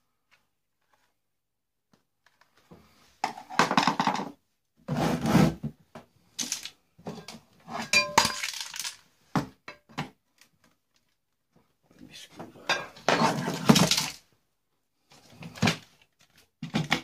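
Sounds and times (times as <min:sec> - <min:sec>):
plastic parts clattering: 0:06.3 - 0:09.1, 0:12.9 - 0:14.3.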